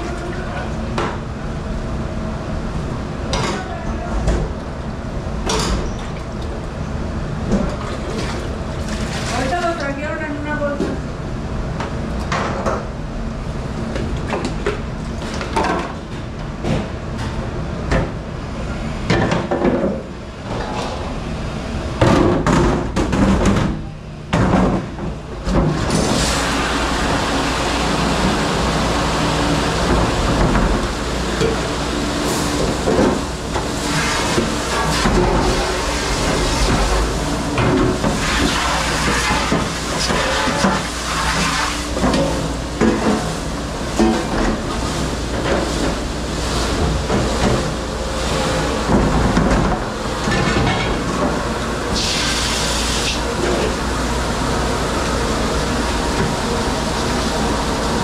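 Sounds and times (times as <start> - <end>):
water spraying: 26.1 - 42.0, 51.9 - 58.0.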